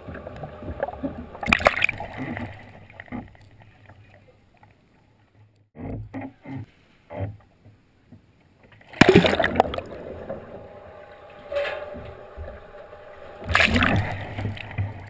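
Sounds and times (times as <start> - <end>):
kayak splashing into water: 0.7 - 3.2, 8.8 - 10.7, 11.5 - 15.0
muffled underwater gurgling: 9.0 - 15.0.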